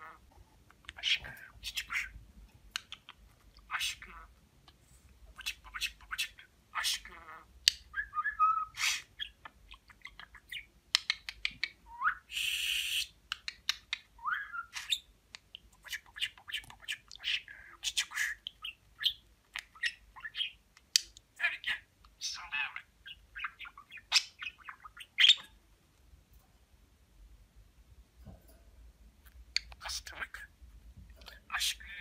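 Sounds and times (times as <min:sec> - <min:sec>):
budgerigar chattering: 0:00.9 - 0:02.2, 0:02.8 - 0:04.3, 0:15.8 - 0:20.6, 0:21.4 - 0:25.5.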